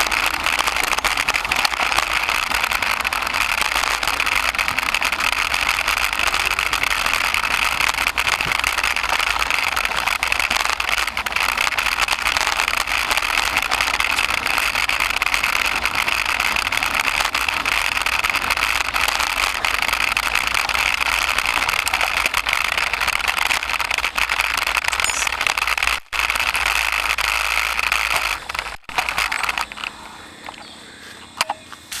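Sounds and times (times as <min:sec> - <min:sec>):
mountain bike rattling on dirt trail: 0:00.0 - 0:31.0.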